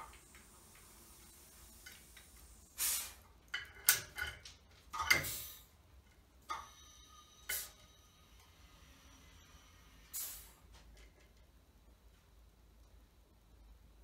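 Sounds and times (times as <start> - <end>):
short air hisses: 2.4 - 3.3, 5.2 - 5.7, 7.5 - 7.8, 9.9 - 10.7.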